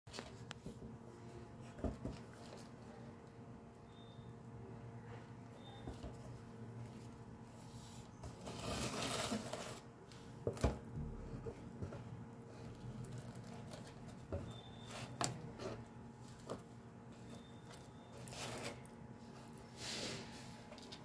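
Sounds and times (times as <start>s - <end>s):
rustling cloth and cardboard: 6.0s - 10.6s.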